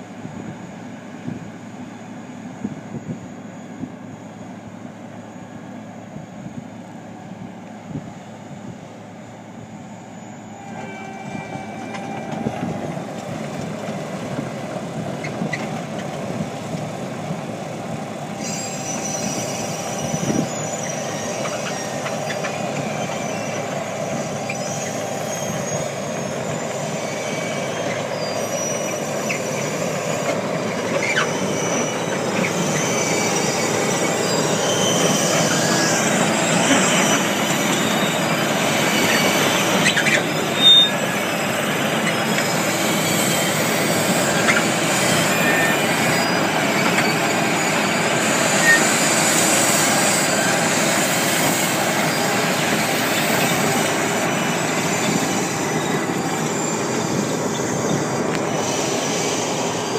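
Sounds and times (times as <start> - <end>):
high metallic squeals: 9.6 - 13.2, 18.3 - 59.9.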